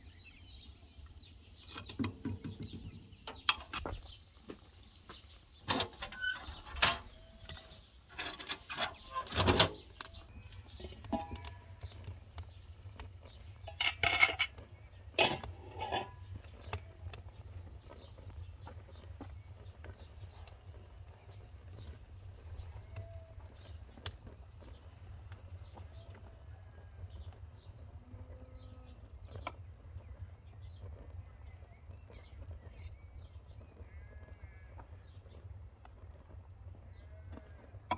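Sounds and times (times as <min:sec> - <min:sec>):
small birds chirping: 0:00.0 - 0:37.9
metal utensils clinking on pans: 0:13.7 - 0:14.6, 0:15.2 - 0:16.2.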